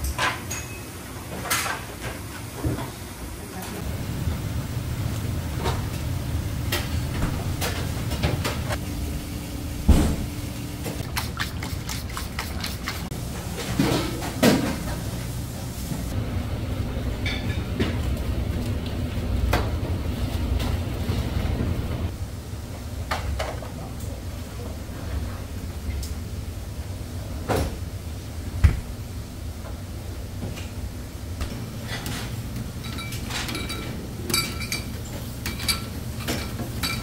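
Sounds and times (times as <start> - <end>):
steady low hum: 3.6 - 22.8.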